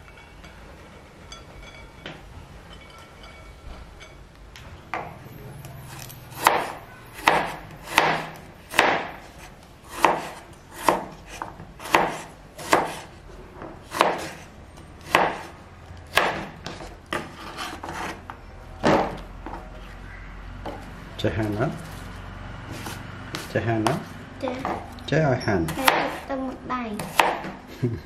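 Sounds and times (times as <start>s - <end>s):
knife cutting on wooden board: 5.9s - 13.1s, 16.1s - 18.2s, 22.7s - 24.1s.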